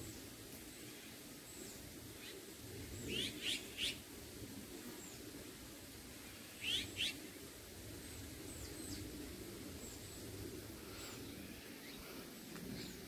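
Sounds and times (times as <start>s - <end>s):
low outdoor hum: 0.0s - 13.0s
bird chirping: 6.6s - 7.2s.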